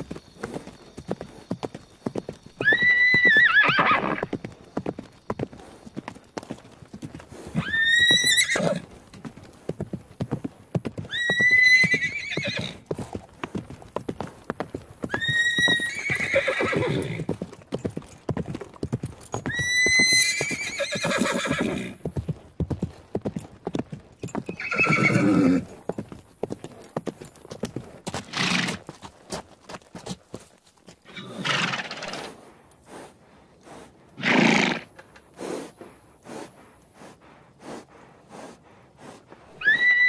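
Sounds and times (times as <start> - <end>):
hoofbeats of running horses: 0.0 - 40.0
horse neighing: 2.6 - 4.3, 7.5 - 8.9, 11.1 - 12.8, 15.1 - 17.3, 19.5 - 22.0, 24.5 - 25.7, 31.1 - 32.3, 34.2 - 35.0, 39.6 - 40.0.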